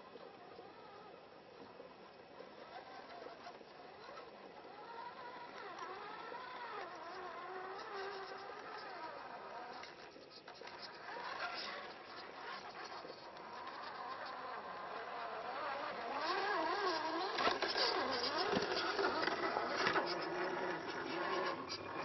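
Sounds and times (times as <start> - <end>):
electric motor whining: 11.0 - 22.0.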